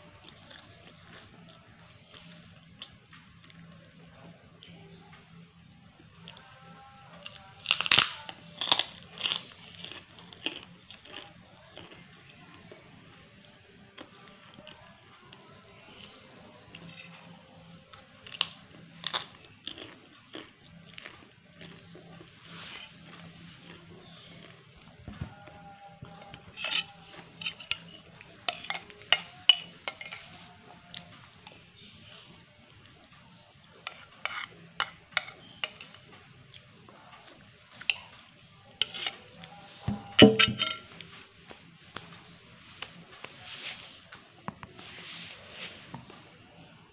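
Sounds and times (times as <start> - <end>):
chewing: 0.0 - 3.8, 6.2 - 44.2
cracker crunching: 7.2 - 12.0, 16.7 - 25.5
metal spoon clinking on glass plate: 26.2 - 30.4, 33.9 - 36.0, 39.8 - 40.9.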